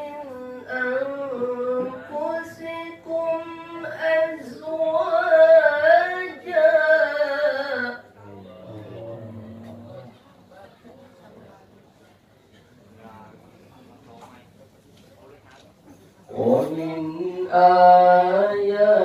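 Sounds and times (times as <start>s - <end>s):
man reciting in melodic chant: 0.0s - 10.2s, 16.3s - 19.0s.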